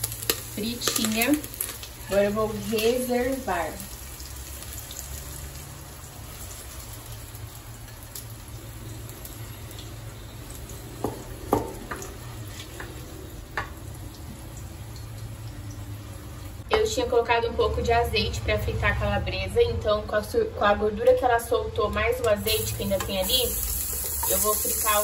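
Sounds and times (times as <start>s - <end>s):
faint sizzle of hot fat: 0.0s - 16.6s, 22.4s - 25.0s.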